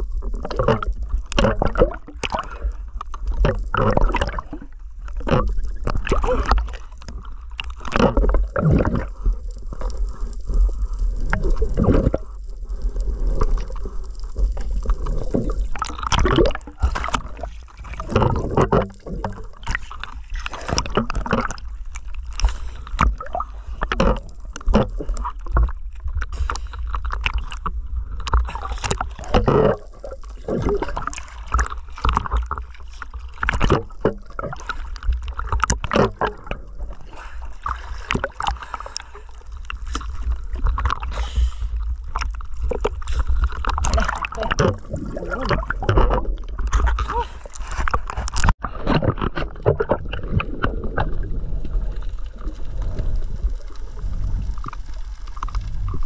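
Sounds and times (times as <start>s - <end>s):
water gurgling and sloshing: 0.0s - 56.0s
steady low rumble: 50.0s - 56.0s.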